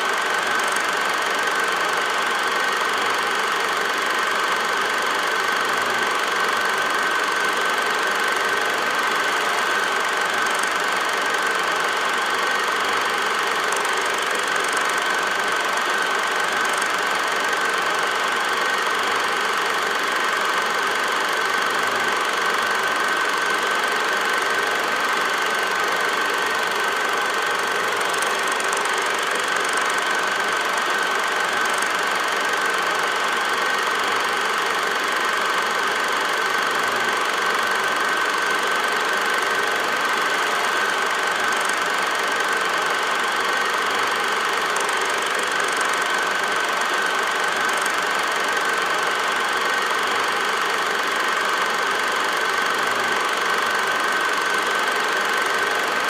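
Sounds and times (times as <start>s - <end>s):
film projector whirring: 0.0s - 56.0s.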